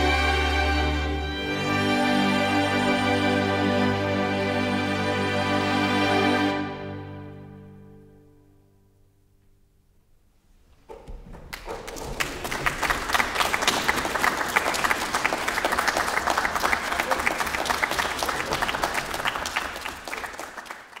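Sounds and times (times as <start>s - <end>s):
many hands clapping: 10.9s - 21.0s.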